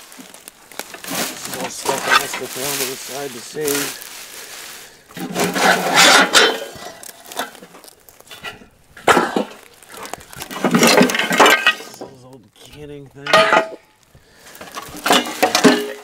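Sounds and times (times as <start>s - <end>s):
glass jars clinking and rattling: 5.2s - 7.6s, 9.0s - 12.0s, 14.8s - 16.0s.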